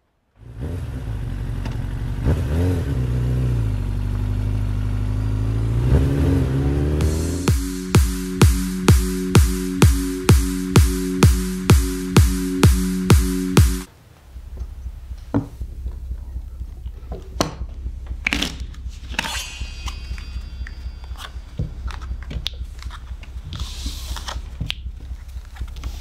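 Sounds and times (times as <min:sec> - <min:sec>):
steady low hum: 0:05.4 - 0:26.0
playing cards rustling: 0:21.9 - 0:26.0.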